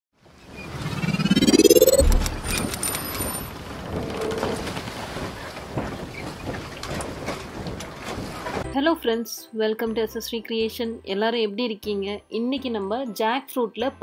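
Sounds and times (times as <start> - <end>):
low boom: 1.0 - 2.7.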